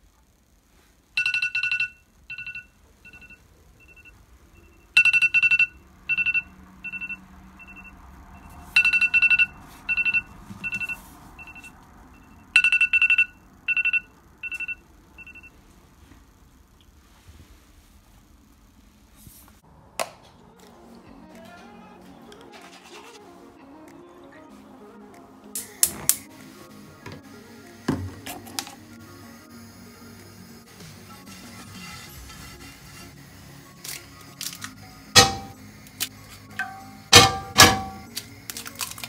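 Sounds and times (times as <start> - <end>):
phone alarm beeps: 1.2 - 15.6.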